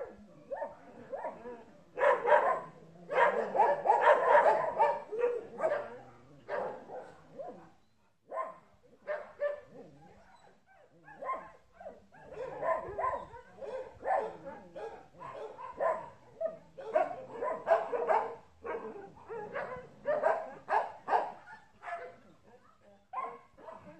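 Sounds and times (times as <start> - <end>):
dog barking: 0.0 - 1.4, 2.0 - 7.7, 8.3 - 23.9.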